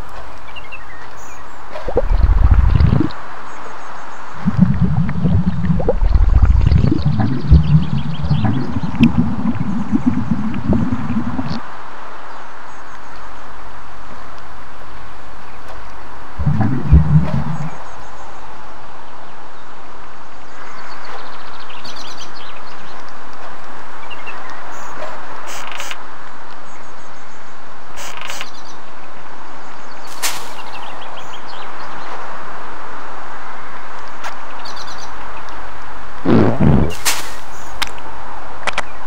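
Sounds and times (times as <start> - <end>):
birds chirping: 0.3 - 13.4, 16.4 - 19.7, 36.3 - 37.8
short low sound: 1.9 - 3.2, 4.4 - 11.6, 16.4 - 17.9, 36.3 - 37.3
loud steady rushing noise: 1.9 - 3.4, 16.4 - 17.8.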